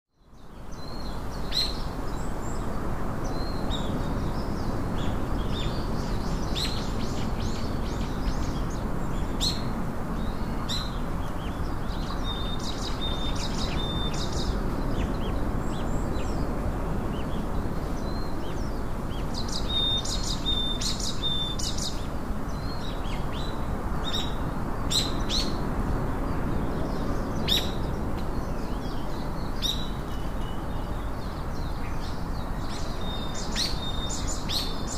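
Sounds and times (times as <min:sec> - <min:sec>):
songbirds chirping: 0:00.1 - 0:34.9
steady background hiss: 0:00.3 - 0:34.9.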